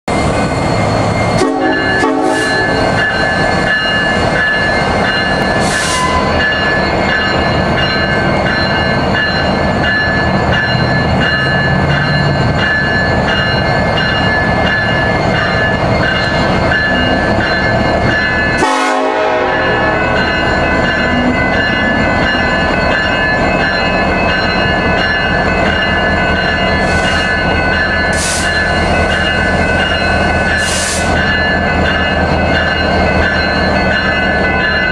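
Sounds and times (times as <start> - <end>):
locomotive engines rumbling: 0.1 - 34.9
locomotive air horn: 1.4 - 2.7, 5.6 - 6.3, 18.6 - 19.8.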